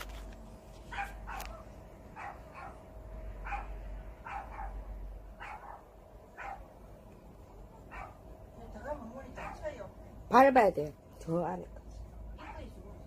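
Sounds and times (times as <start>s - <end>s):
dog barking: 0.9s - 6.7s, 7.8s - 8.3s, 9.3s - 9.7s, 12.4s - 12.7s.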